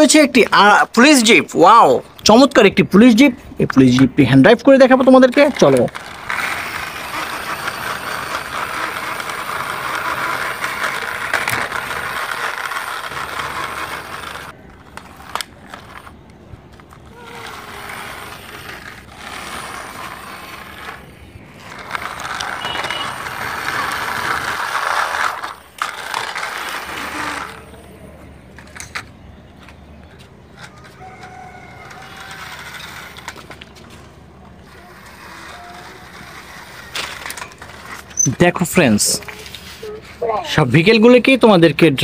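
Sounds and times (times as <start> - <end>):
toy wheels rattling over concrete: 0.0 - 42.0.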